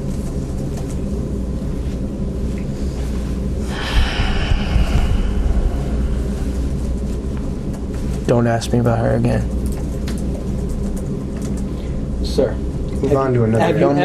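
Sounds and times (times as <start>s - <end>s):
low room hum: 0.0s - 14.0s
man breathing out heavily: 3.6s - 7.3s.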